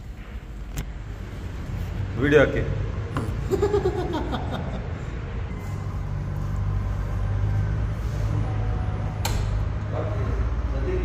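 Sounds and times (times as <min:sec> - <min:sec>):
low vehicle hum: 0:00.0 - 0:11.0.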